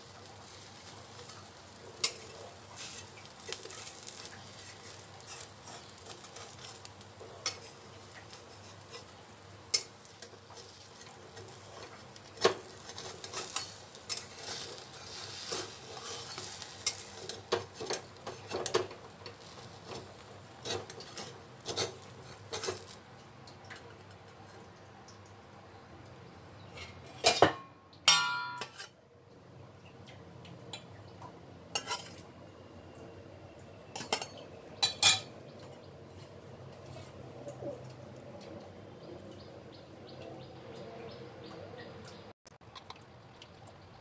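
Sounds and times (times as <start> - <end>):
faint sizzle: 0.0 - 42.3
metal spatula scraping a wok: 2.0 - 23.0, 28.6 - 29.0, 31.8 - 32.2.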